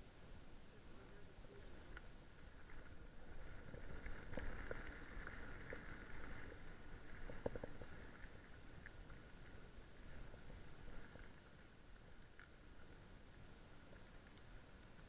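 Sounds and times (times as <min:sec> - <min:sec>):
wind rumble on microphone: 0:00.0 - 0:15.0
bike rolling over gravel: 0:01.9 - 0:11.6.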